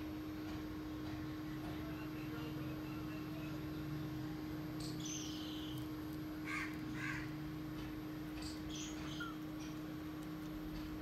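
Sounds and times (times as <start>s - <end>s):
steady low hum: 0.0s - 11.0s
birds squawking: 6.4s - 7.5s, 8.5s - 9.8s.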